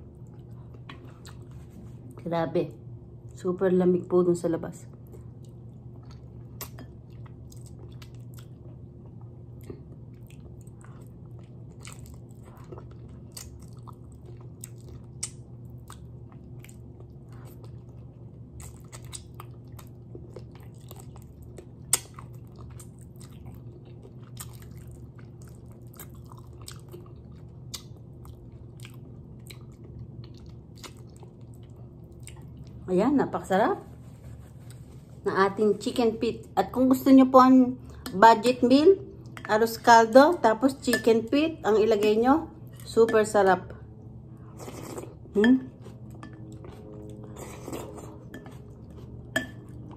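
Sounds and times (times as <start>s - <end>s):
steady low hum: 0.0s - 49.9s
person chewing with crunching: 0.1s - 2.2s, 4.9s - 32.8s, 44.4s - 49.9s.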